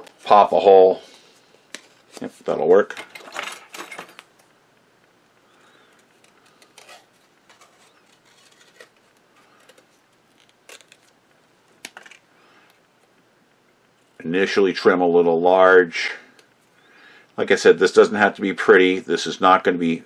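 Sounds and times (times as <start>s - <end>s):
tools and card clattering: 2.9s - 4.4s, 5.9s - 11.1s, 11.8s - 12.2s.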